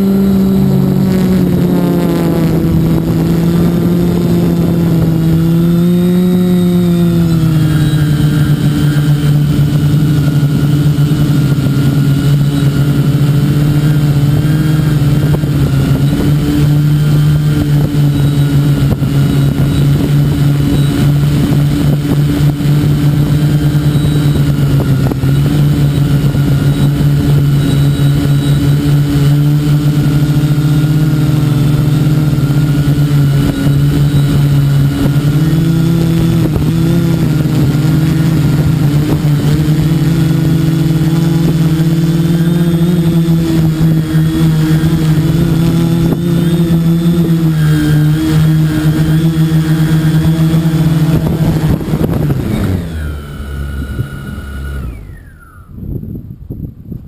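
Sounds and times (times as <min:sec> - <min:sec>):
drone motors buzzing: 0:00.0 - 0:56.2.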